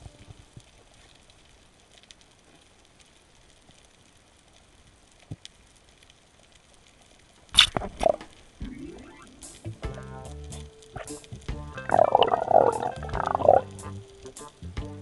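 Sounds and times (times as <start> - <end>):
small clicks: 0.0 - 8.6
underwater crackling and hiss: 0.0 - 15.0.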